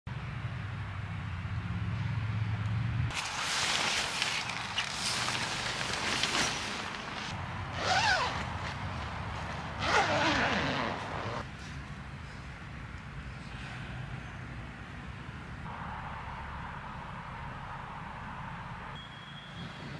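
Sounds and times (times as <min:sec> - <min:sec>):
nylon fabric rustling: 0:03.1 - 0:11.5
low hum: 0:15.7 - 0:19.1.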